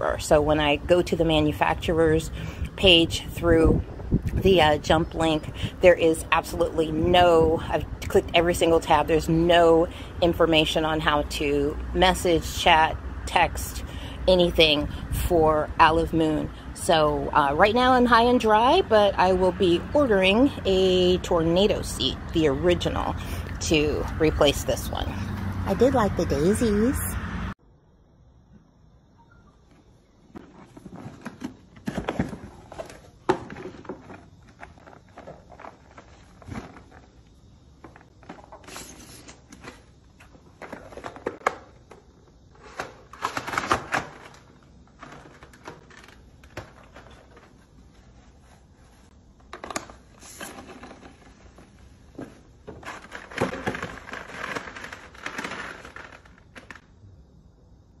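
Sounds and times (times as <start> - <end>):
plastic stool rustles and scrapes: 30.3 - 41.7, 42.5 - 56.9.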